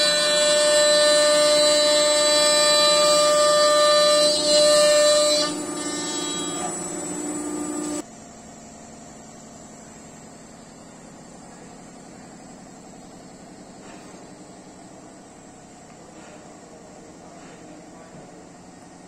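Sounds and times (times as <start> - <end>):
router spindle whining: 0.0 - 8.0.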